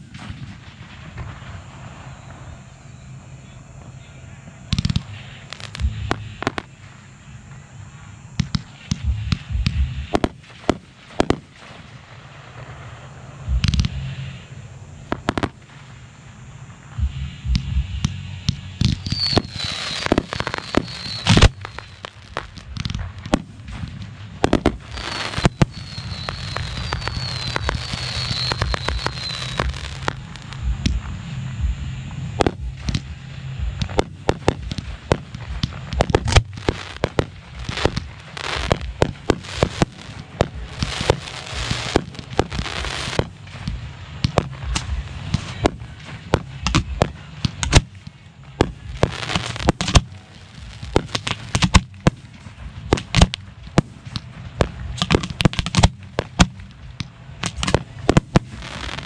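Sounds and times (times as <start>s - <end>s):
firework hiss with high chirps: 0.0s - 59.0s
firework shells bursting: 17.4s - 31.1s, 32.3s - 59.0s.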